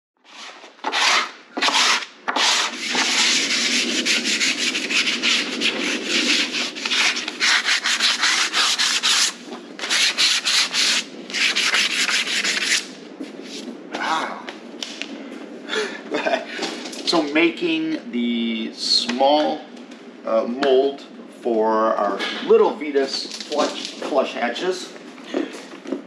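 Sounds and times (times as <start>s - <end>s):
sanding sponge rubbing wood: 0.3s - 12.9s.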